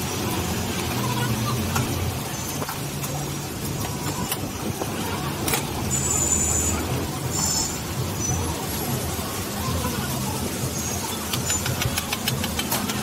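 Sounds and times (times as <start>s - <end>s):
road traffic hum: 0.0s - 13.0s
metal utensils clicking on pan: 11.2s - 13.0s.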